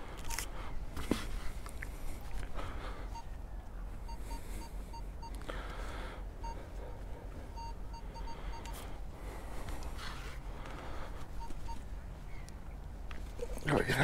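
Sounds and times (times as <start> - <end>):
metal detector beeps: 4.1 - 5.4, 6.4 - 6.7, 7.5 - 8.8, 11.4 - 11.8.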